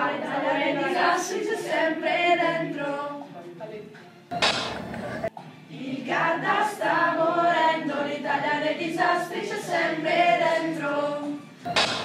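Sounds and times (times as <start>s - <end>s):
group of voices singing: 0.0s - 3.3s, 5.0s - 12.0s.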